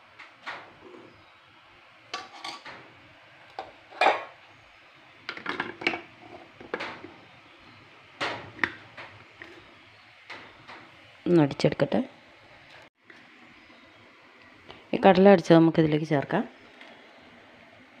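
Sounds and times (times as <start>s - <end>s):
steel utensils clinking: 2.2s - 2.7s.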